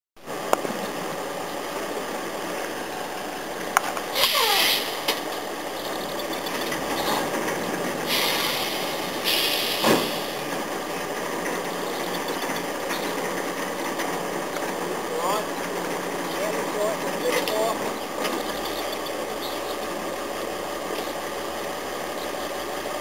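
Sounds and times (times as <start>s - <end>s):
crane engine running: 0.2s - 23.0s
loud machinery hisses: 4.1s - 5.3s, 8.0s - 10.6s
short falling squeal: 4.2s - 5.0s.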